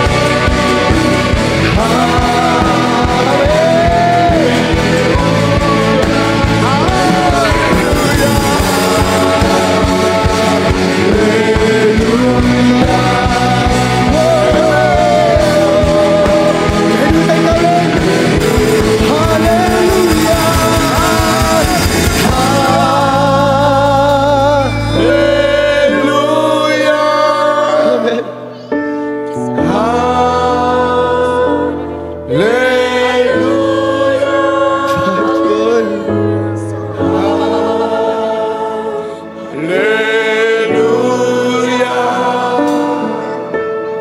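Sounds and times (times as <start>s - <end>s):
steady drum beat: 0.0s - 25.2s
people singing: 0.0s - 28.7s, 29.3s - 44.0s
band chords: 0.0s - 44.0s.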